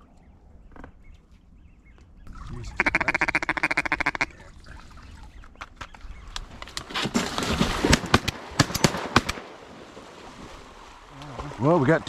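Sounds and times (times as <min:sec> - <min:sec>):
duck quacks: 0:02.7 - 0:04.4.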